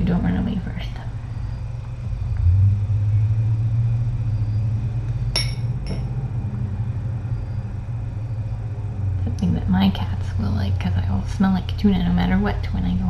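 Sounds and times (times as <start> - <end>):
steady low hum: 0.0 - 13.0
short metallic clinks: 5.4 - 6.1.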